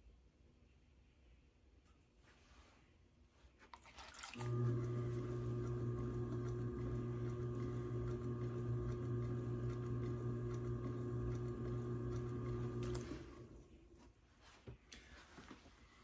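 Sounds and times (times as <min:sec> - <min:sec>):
potter's wheel motor hum: 0:04.4 - 0:14.0.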